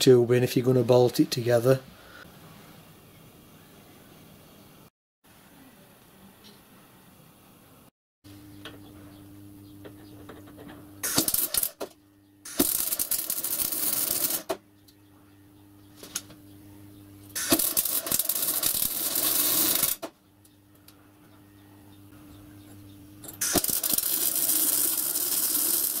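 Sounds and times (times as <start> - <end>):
steady low hum: 8.3 - 25.5
welding arc crackling: 11.0 - 11.8, 12.5 - 14.6, 17.3 - 20.1, 23.4 - 26.0.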